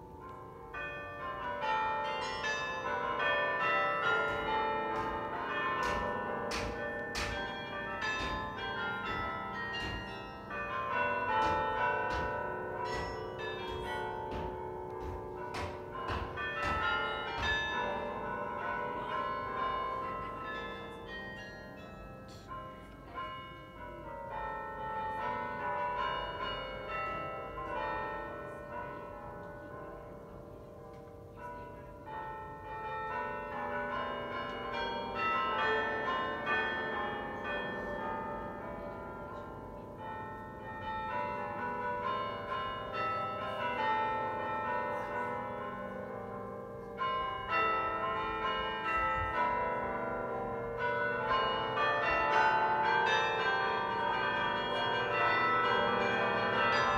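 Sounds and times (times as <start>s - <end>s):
carillon bells playing a tune: 0.6s - 28.8s.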